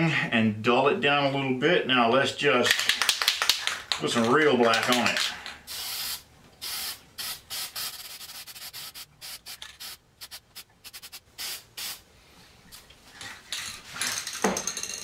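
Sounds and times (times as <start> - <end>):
spray paint bursts: 5.0 - 12.1.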